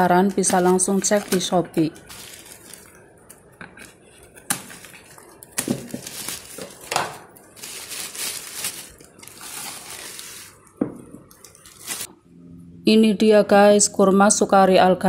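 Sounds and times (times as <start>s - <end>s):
plastic bag crinkling: 0.0s - 12.1s
plastic bag ripping: 0.4s - 3.0s, 3.8s - 10.6s, 11.3s - 12.1s.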